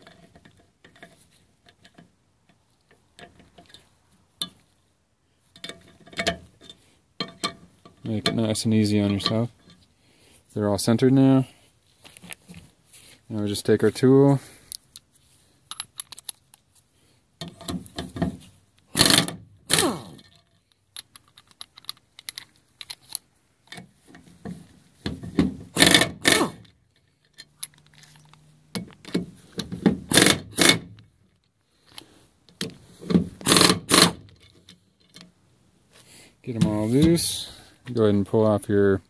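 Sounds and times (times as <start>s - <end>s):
impact wrench bursts: 18.9s - 20.2s, 25.8s - 26.6s, 30.1s - 30.9s, 33.4s - 34.3s.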